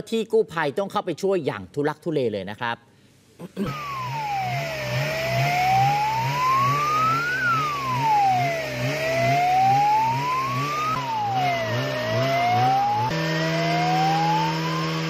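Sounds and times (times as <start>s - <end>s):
low pulsing warble: 3.7s - 15.0s
siren wailing: 3.7s - 15.0s.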